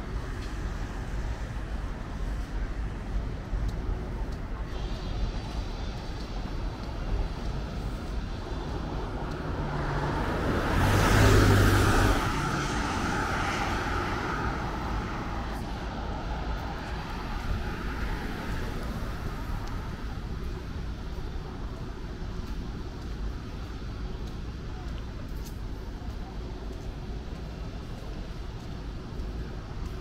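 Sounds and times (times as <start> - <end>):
street noise: 0.0 - 30.0
vehicle driving past: 9.5 - 15.8.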